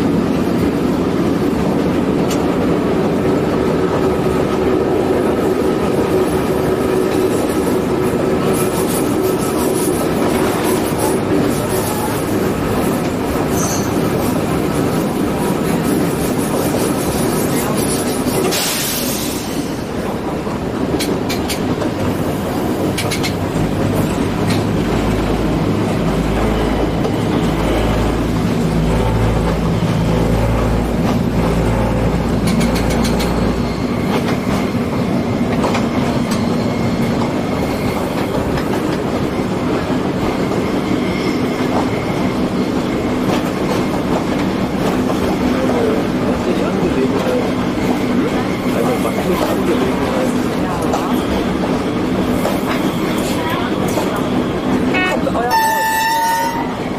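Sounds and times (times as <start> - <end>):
railcar engine and running noise: 0.0 - 56.9
wheels clacking over rail joints: 19.7 - 40.7.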